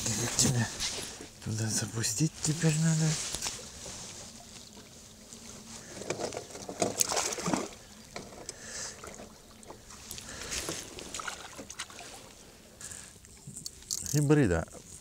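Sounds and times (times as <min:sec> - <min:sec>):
water splashing against boat: 0:02.6 - 0:12.5.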